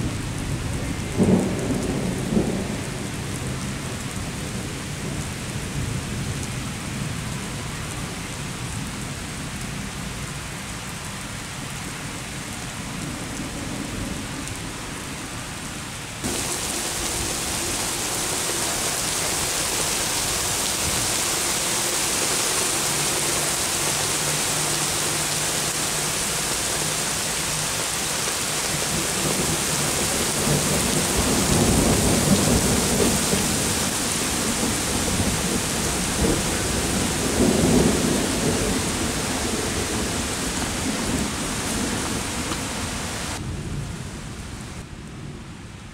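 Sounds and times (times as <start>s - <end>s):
steady rain: 0.0s - 45.9s
thunder rumbling: 16.2s - 44.5s.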